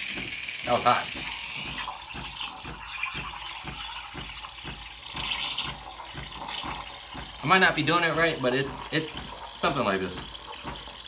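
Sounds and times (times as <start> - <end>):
espresso steam wand hissing: 0.0 - 2.0.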